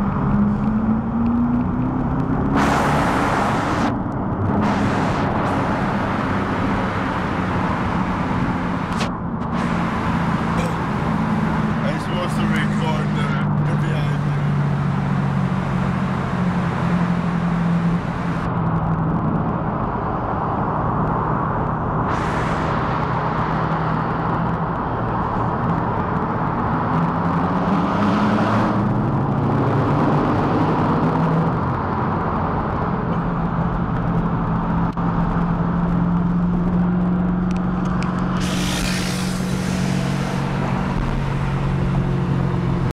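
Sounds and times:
low exhaust drone: 0.0s - 27.6s, 31.8s - 42.9s
short bursts of hiss: 38.4s - 40.4s.

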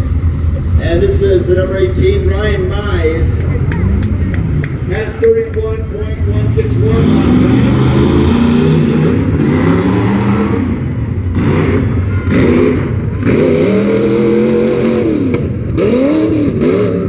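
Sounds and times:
truck engine revving: 0.0s - 17.0s.

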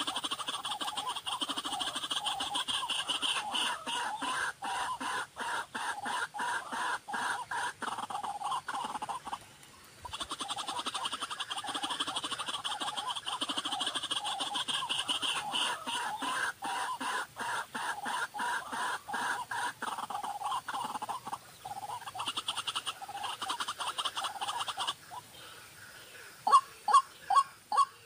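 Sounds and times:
waterhen calling: 0.0s - 28.0s.

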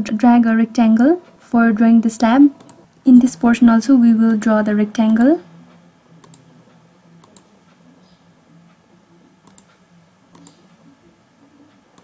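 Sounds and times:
low steady hum: 0.0s - 12.0s
computer mouse clicks: 2.6s - 2.8s, 6.2s - 6.4s, 9.4s - 10.7s.

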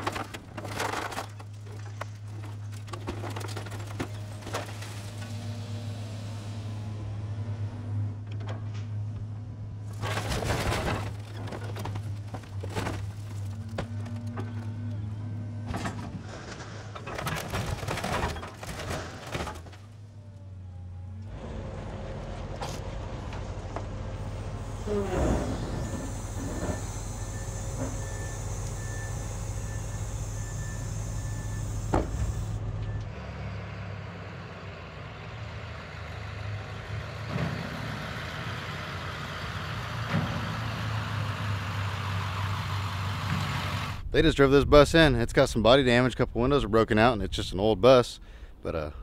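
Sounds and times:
sheet metal scraping and crunching: 9.9s - 14.9s, 15.6s - 20.0s
machine engine humming: 19.9s - 44.1s.

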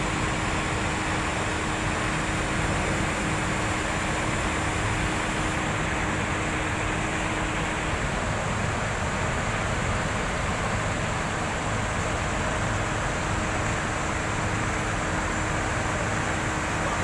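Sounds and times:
steady rushing hiss: 0.0s - 8.4s.

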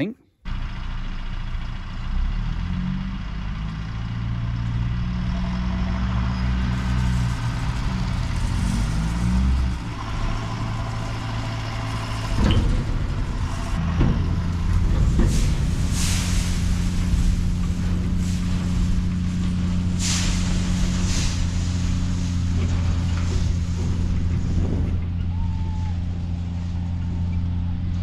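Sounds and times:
heavy diesel engines labouring: 0.0s - 28.0s.

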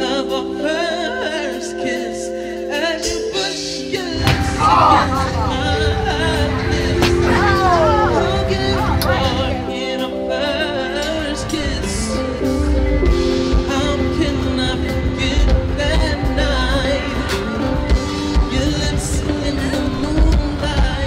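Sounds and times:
rock and roll song with singer: 0.0s - 21.0s.

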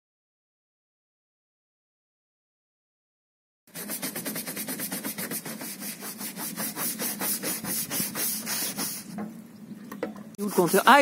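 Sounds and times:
scrub brush scrubbing: 3.7s - 9.1s, 10.4s - 11.0s.

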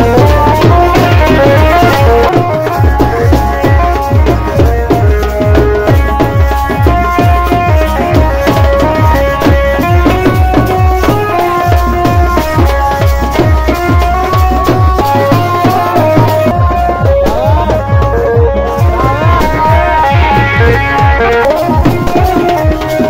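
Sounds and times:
dance music: 15.8s - 22.8s.

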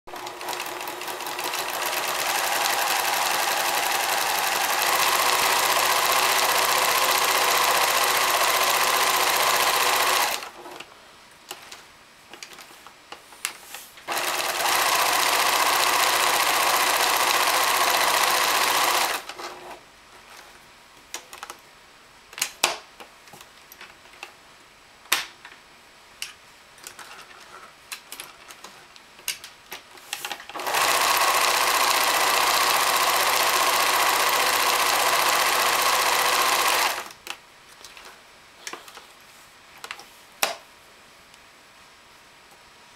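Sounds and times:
sewing machine stitching: 0.1s - 10.8s, 14.1s - 19.8s, 30.5s - 37.1s.

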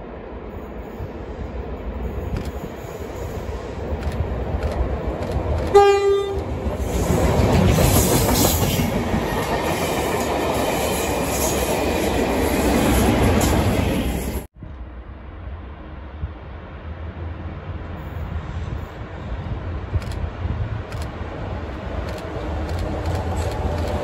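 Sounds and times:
train passing rumble: 0.0s - 24.0s
train horn blast: 5.7s - 6.5s.

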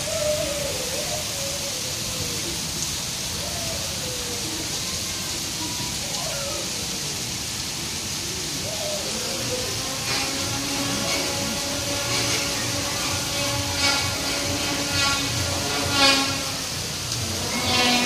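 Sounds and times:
rain falling: 0.0s - 18.0s
faint wavering voices: 8.0s - 18.0s.

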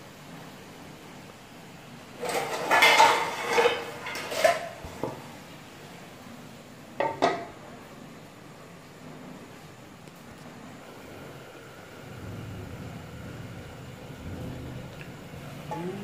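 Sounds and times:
metal cookware clanking: 2.2s - 5.2s, 7.0s - 7.6s.

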